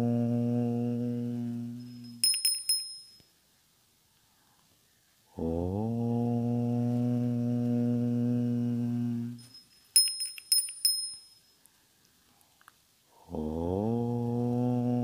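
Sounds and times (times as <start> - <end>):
low chanted om: 0.0 - 2.2, 5.3 - 9.4, 13.1 - 15.0
small bell ringing: 1.8 - 3.3, 9.4 - 11.6.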